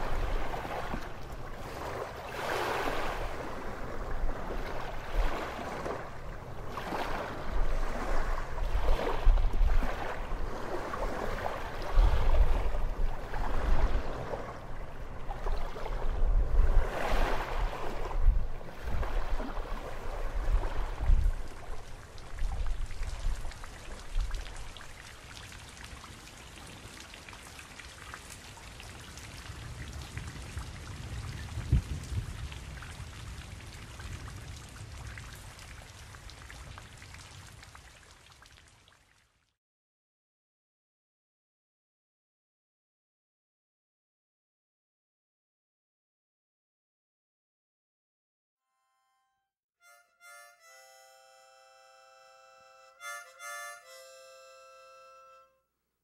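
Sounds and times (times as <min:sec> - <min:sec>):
wind rumbling on microphone: 0:00.0 - 0:25.2, 0:28.8 - 0:37.9
sea waves washing: 0:00.0 - 0:26.0.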